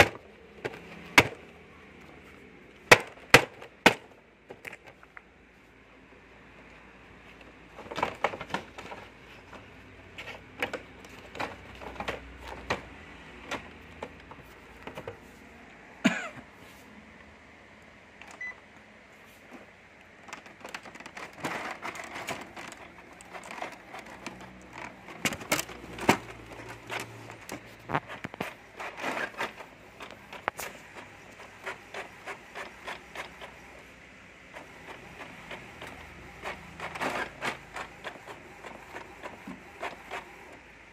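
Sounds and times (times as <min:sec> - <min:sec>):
inkjet printer clicks and clunks: 0:00.0 - 0:01.7, 0:02.8 - 0:05.1, 0:07.3 - 0:15.3, 0:20.0 - 0:33.9, 0:34.5 - 0:40.6.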